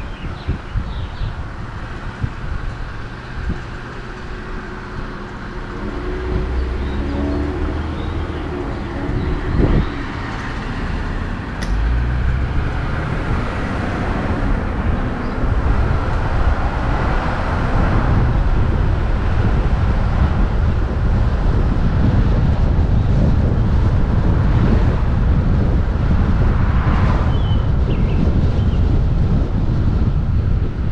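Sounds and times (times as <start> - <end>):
wind noise: 0.0 - 30.9
car engine: 1.3 - 22.8.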